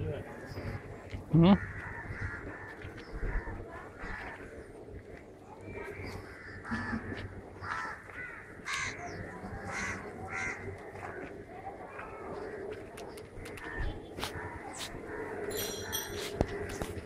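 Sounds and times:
crows cawing: 1.5s - 4.8s, 5.7s - 11.4s, 13.4s - 17.0s.

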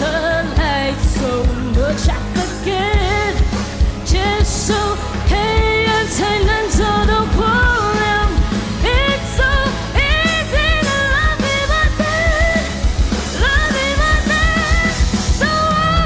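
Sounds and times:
band with drum beat: 0.0s - 16.0s
electric guitar: 0.0s - 16.0s
woman singing into a microphone: 0.0s - 16.0s.

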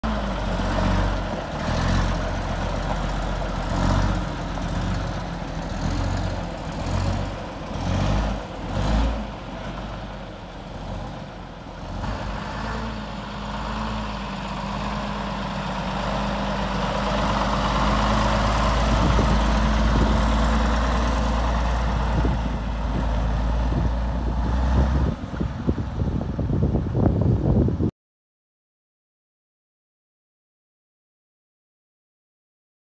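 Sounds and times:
diesel truck driving on gravel: 0.0s - 27.9s.

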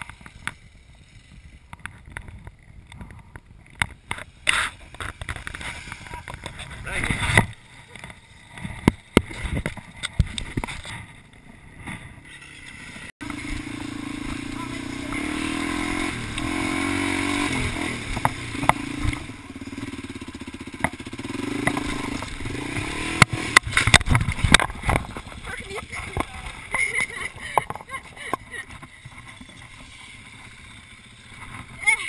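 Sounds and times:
dirt bike engine under load: 0.0s - 32.0s
scattered knocks and clicks: 23.1s - 30.4s.

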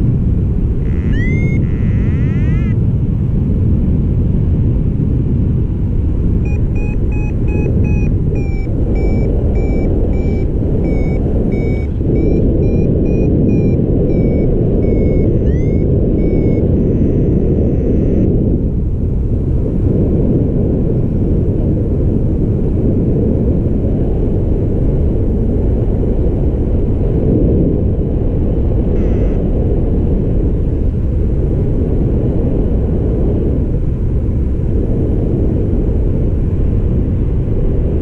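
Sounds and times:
wind rushing over microphone: 0.0s - 38.0s
rising electronic chirps: 0.8s - 2.8s, 6.5s - 18.3s, 29.0s - 29.4s
variometer beeping: 0.8s - 2.8s, 6.4s - 18.4s, 29.0s - 29.4s.

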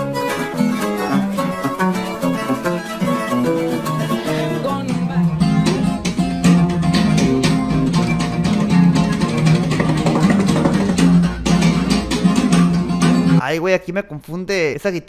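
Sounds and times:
acoustic bass line: 0.0s - 13.4s
picked acoustic guitar lead: 0.0s - 13.4s
slap-strummed rhythm guitar: 0.0s - 13.4s.

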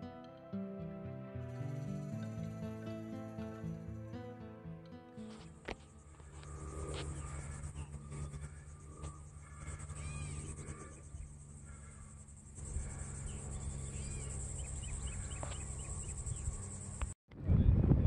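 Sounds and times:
insects buzzing: 5.4s - 17.2s
bird chirps: 5.8s - 17.1s.

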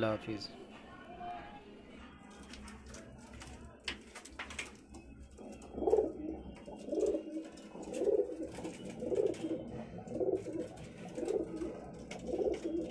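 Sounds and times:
pigeons cooing: 4.4s - 12.9s.

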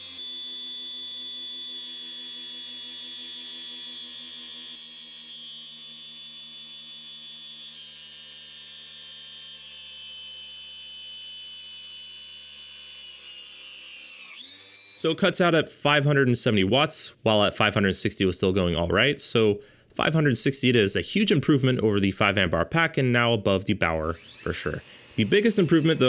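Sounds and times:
angle grinder motor whine: 0.0s - 15.2s, 23.9s - 26.0s.

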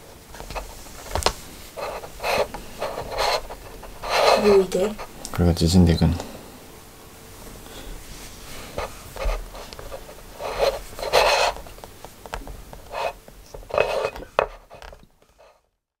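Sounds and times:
metal tube scraping and crinkling: 0.4s - 5.1s, 8.8s - 11.8s, 12.9s - 15.6s.

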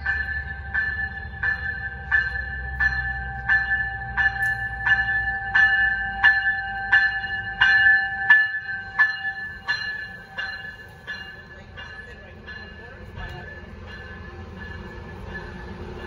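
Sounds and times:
locomotive bell ringing: 0.0s - 16.0s.

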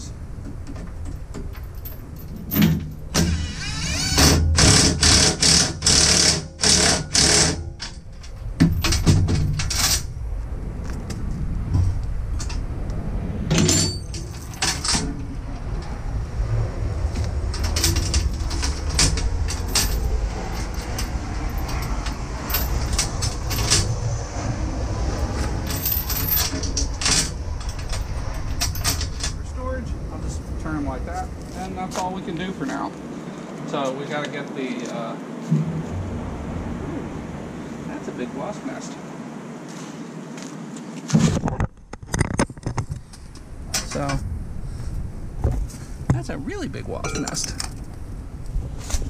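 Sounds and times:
steady low rumble: 0.0s - 6.0s, 6.6s - 39.6s, 41.5s - 49.0s
metal chain rattling and clinking: 1.0s - 3.5s, 5.0s - 10.2s, 13.5s - 15.2s, 17.5s - 24.0s, 25.2s - 29.4s.

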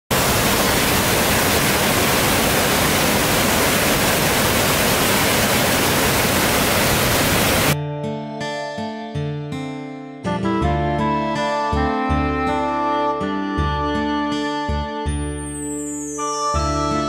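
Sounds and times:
waterfall roar: 0.1s - 7.8s
acoustic guitar music: 7.8s - 17.0s.

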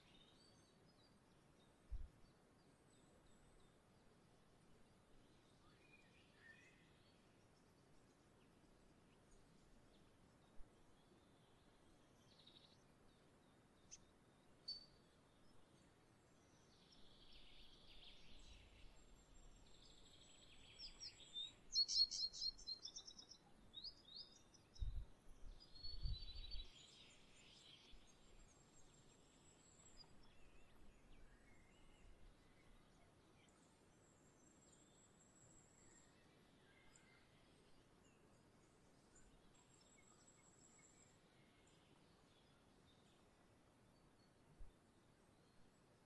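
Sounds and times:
songbirds chirping: 0.0s - 46.0s.

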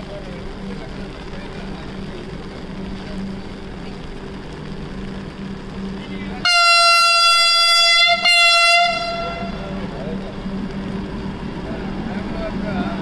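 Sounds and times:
train horn blasts: 6.4s - 9.8s.

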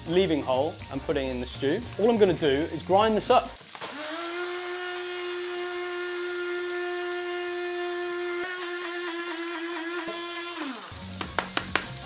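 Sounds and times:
electric spice grinder whining: 3.8s - 11.2s.

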